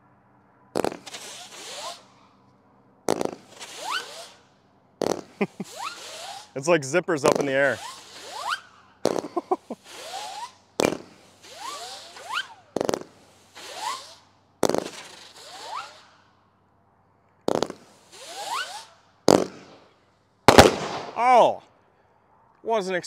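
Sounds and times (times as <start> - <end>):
firework tube reports: 0.8 - 2.2, 3.1 - 16.2, 17.5 - 19.6
firework zipping whistles: 0.8 - 2.4, 3.1 - 16.6, 17.4 - 21.2.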